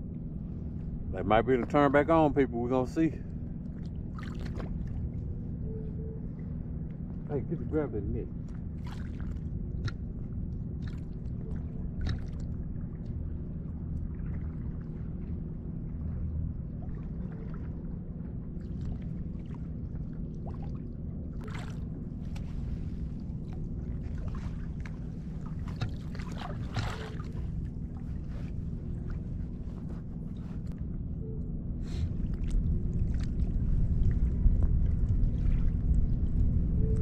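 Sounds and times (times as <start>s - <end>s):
faint hum: 0.0s - 37.0s
low rumble: 0.0s - 37.0s
water splashing: 4.1s - 5.0s, 8.8s - 10.0s, 21.4s - 29.3s.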